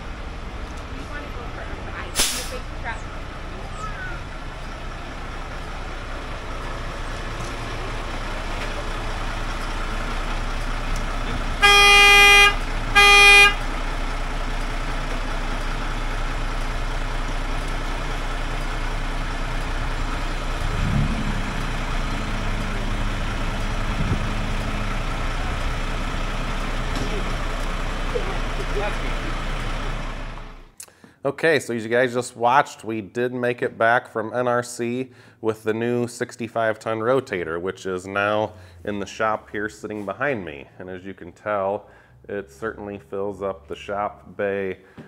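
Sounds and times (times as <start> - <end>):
truck engine idling: 0.0 - 30.8
vehicle horn blasts: 11.6 - 13.7.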